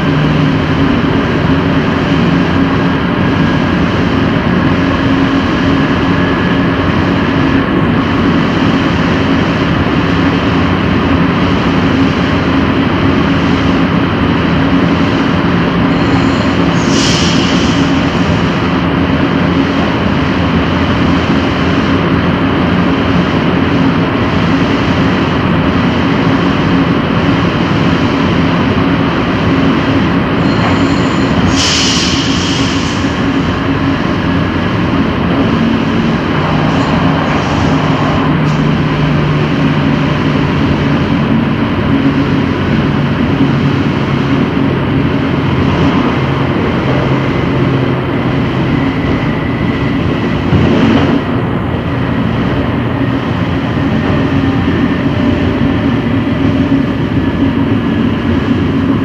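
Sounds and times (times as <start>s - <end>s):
electric train rumbling: 0.0s - 59.0s
brief high hisses: 30.5s - 33.2s.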